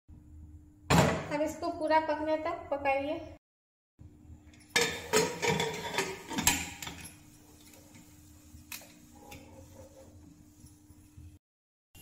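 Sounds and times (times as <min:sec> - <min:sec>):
pressure cooker lid clanking: 0:04.8 - 0:07.0.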